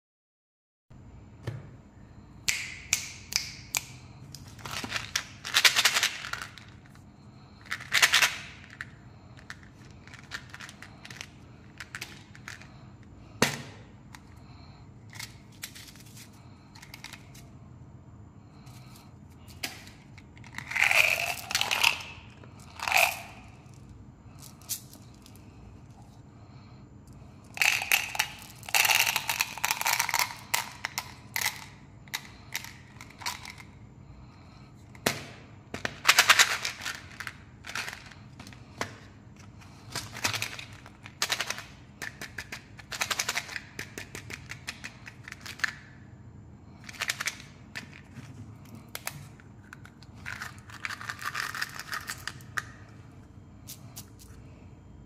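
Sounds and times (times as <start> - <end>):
hard candies rattling in plastic bottle: 7.5 - 12.8, 20.0 - 23.6, 27.5 - 33.7, 35.8 - 38.8, 48.8 - 52.7
plastic caps clicking: 27.5 - 33.7.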